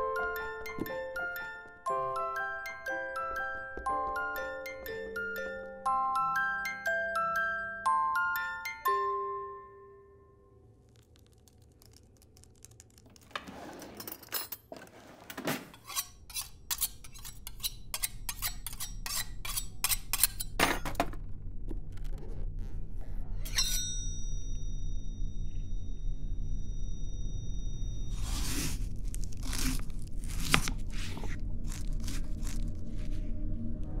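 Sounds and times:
glockenspiel notes: 0:00.0 - 0:10.6
knives and cutlery clattering: 0:13.6 - 0:21.1, 0:23.5 - 0:24.1
high metallic ring: 0:23.4 - 0:28.2
low musical drone: 0:31.4 - 0:34.0.

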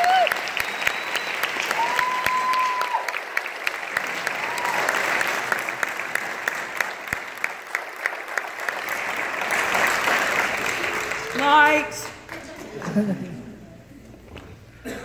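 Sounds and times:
close claps: 0:00.0 - 0:13.0
audience applauding: 0:00.0 - 0:13.2
whistle: 0:00.6 - 0:02.8.

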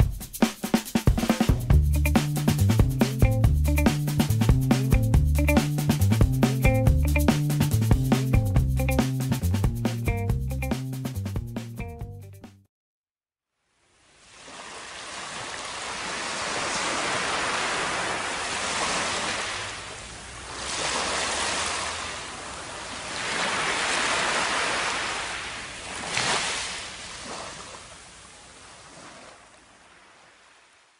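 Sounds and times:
surf washing up a beach: 0:14.0 - 0:30.9.

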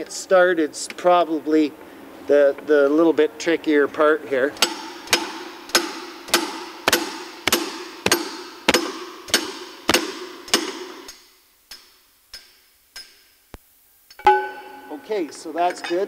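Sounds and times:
hammer striking steel handle: 0:04.6 - 0:13.2, 0:14.2 - 0:16.0.

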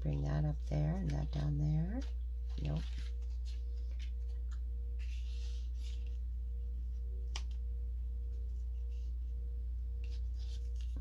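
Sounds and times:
steady low hum: 0:00.0 - 0:11.0
paper scraps rustling: 0:00.2 - 0:06.2.

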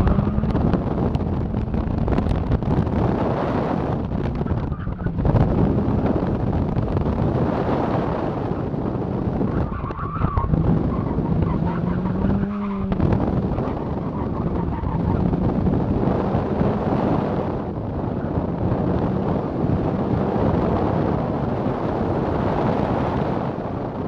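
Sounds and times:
heavy wind noise: 0:00.0 - 0:24.0.

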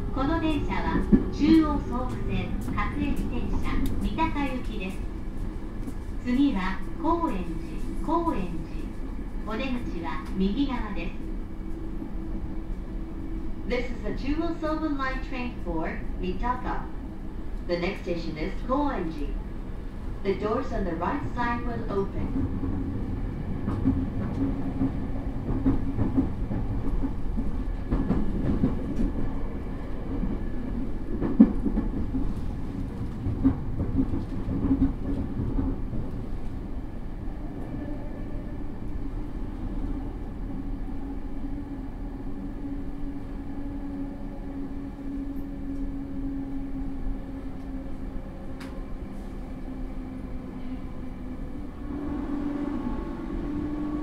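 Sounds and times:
train motor low hum: 0:00.0 - 0:54.0
train wheels clattering over track: 0:00.5 - 0:07.4, 0:23.6 - 0:36.5.

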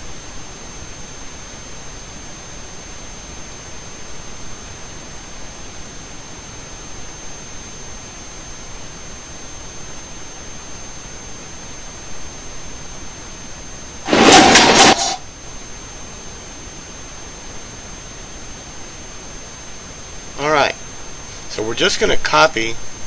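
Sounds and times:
faint high-pitched whine: 0:00.0 - 0:23.0
loud burst of advertisement audio: 0:14.1 - 0:15.2.

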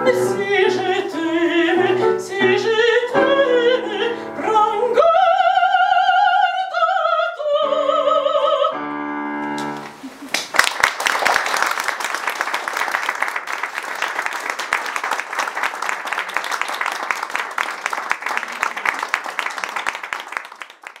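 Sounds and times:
audience applauding: 0:10.2 - 0:21.0.

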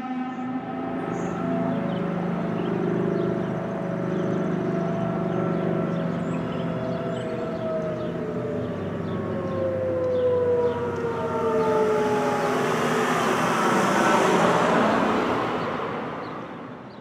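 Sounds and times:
warning siren winding down: 0:00.0 - 0:16.7
rushing wash: 0:11.6 - 0:16.8.

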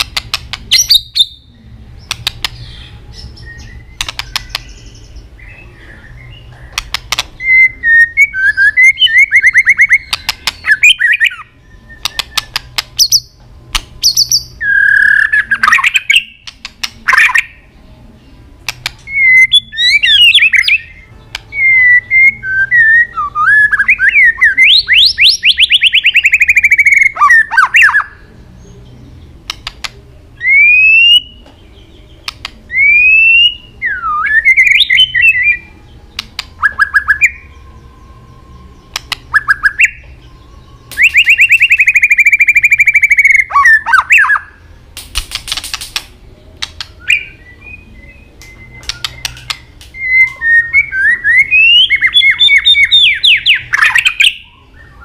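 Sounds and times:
sharp clicking bird notes: 0:00.0 - 0:01.3, 0:02.0 - 0:02.7, 0:03.6 - 0:04.8, 0:06.5 - 0:07.6, 0:08.7 - 0:17.5, 0:18.6 - 0:21.7, 0:29.4 - 0:30.1, 0:31.1 - 0:32.8, 0:36.1 - 0:37.3, 0:38.9 - 0:40.2, 0:40.8 - 0:54.4
bird singing whistles and trills: 0:00.0 - 0:13.4, 0:14.0 - 0:17.7, 0:18.3 - 0:29.6, 0:30.4 - 0:44.8, 0:46.4 - 0:55.0.

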